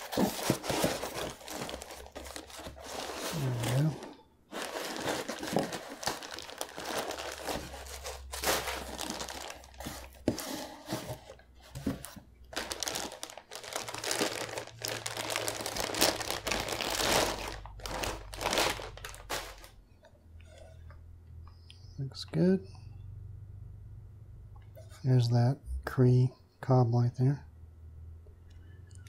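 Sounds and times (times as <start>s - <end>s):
plastic bag crinkling: 0.0s - 19.8s.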